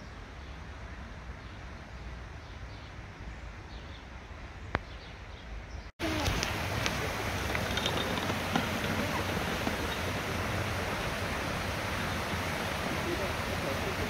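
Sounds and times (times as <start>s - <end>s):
river water pouring over weir: 6.0s - 14.0s.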